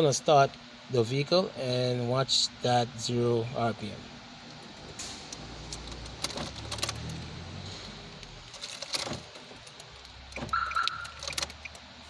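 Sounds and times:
car engine cranking: 4.6 - 11.9
keys jangling in ignition: 5.7 - 11.8.

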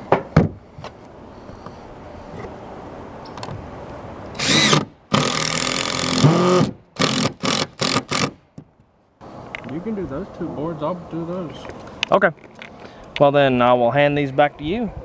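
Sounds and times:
impact driver driving screw: 4.4 - 8.4.

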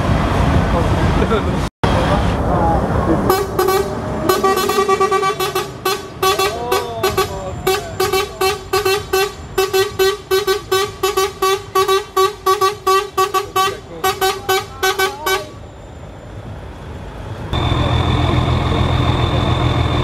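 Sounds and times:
truck horn short toots: 3.3 - 15.6.

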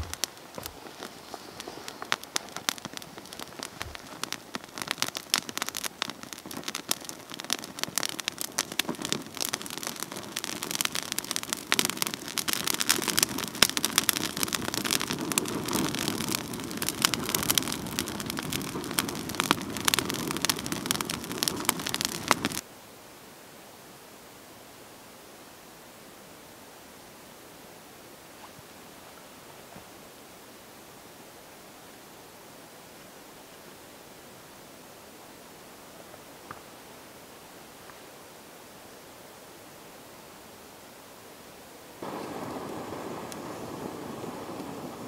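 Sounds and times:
leaves crackling and popping in fire: 0.0 - 22.6, 41.8 - 45.0
rush of burning flames: 0.0 - 22.6, 42.0 - 45.0
faint steady hiss: 0.0 - 45.0.

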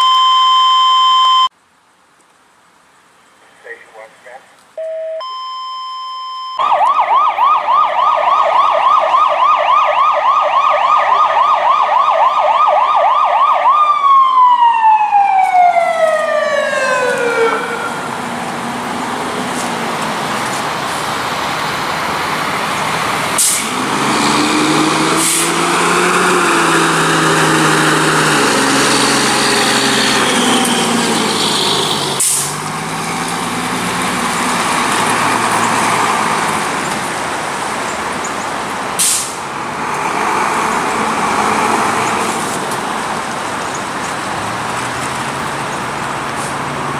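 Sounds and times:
electronic siren: 4.8 - 18.0
heavy vehicle engine running: 18.1 - 46.9
short sharp hisses: 23.4 - 23.7, 32.2 - 32.6, 39.0 - 39.4.

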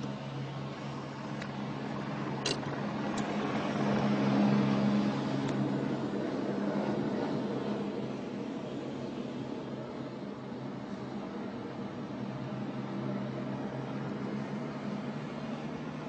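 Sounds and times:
car engine and road drone: 0.0 - 16.0
helicopter flying low: 0.0 - 16.0.

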